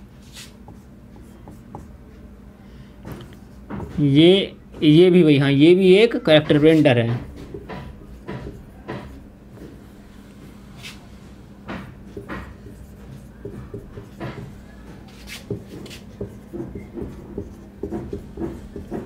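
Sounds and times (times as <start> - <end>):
steady low hum: 0.0 - 19.0
marker pen writing on whiteboard: 0.3 - 2.2, 6.4 - 19.0.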